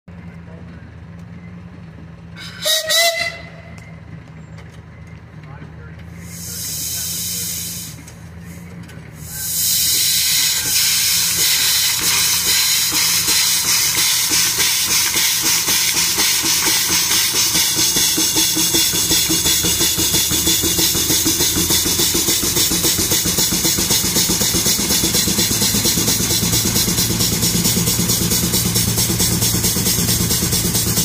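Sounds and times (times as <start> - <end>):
steam engine exhaust chuff: 0.1 - 4.3, 6.0 - 31.0
steam hissing: 6.2 - 8.1, 9.2 - 31.0.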